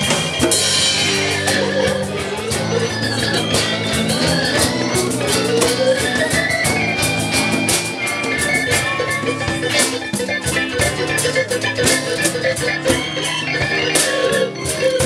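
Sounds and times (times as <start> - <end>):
congas: 0.0 - 15.0
drum kit beat: 0.0 - 15.0
electric guitar: 0.0 - 15.0
keyboard: 0.0 - 15.0.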